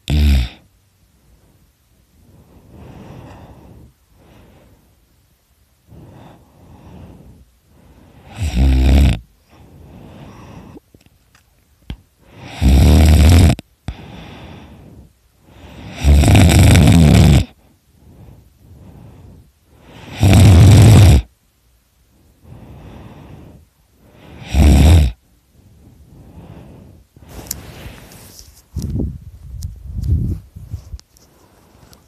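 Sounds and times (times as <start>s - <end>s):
person snoring loudly: 0.0s - 0.7s, 8.2s - 9.3s, 12.3s - 14.4s, 15.6s - 17.6s, 19.9s - 21.3s, 24.2s - 25.2s
quiet breaths: 0.0s - 32.0s.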